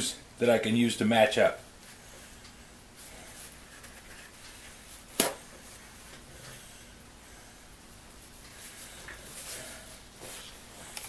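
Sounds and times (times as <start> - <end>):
paper towel rustling: 3.0 - 6.6, 8.1 - 11.0.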